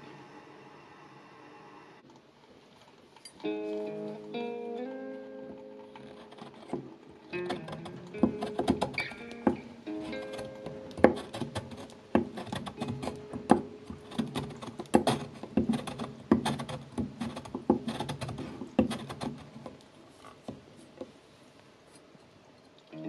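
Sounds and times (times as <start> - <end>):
cheese grating scraping: 5.5 - 21.0.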